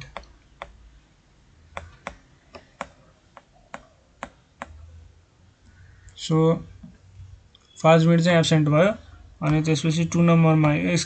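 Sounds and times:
stylus tapping on tablet screen: 0:00.0 - 0:00.8, 0:01.7 - 0:04.8, 0:09.4 - 0:09.7, 0:10.6 - 0:11.0.

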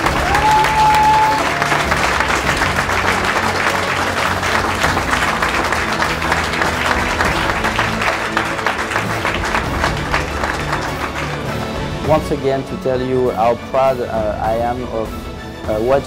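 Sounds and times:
crowd applauding: 0:00.0 - 0:12.4
background music: 0:00.0 - 0:16.0.

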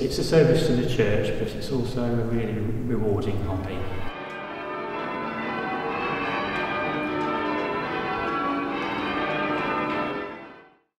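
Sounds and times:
church bells ringing: 0:03.3 - 0:11.0.

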